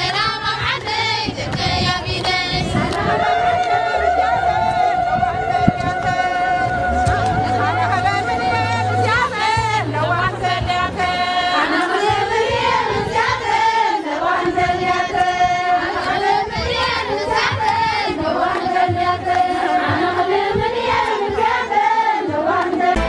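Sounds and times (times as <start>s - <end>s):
instrumental backing with bass: 0.0s - 13.6s, 22.8s - 23.0s
women singing in unison: 0.0s - 23.0s.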